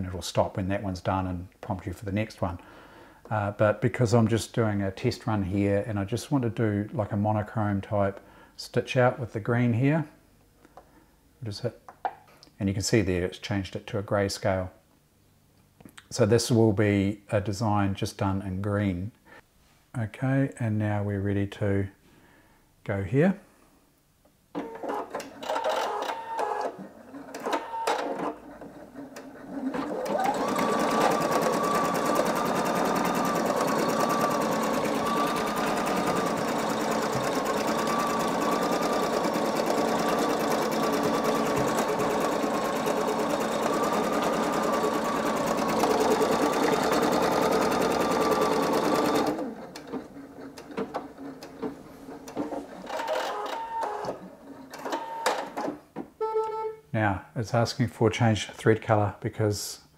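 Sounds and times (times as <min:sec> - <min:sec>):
embroidery machine stitching: 0:24.6 - 0:55.7.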